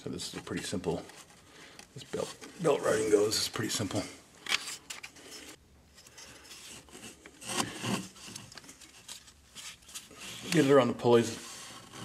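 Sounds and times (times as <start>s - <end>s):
rubber belt rubbing and scraping: 4.5s - 12.0s.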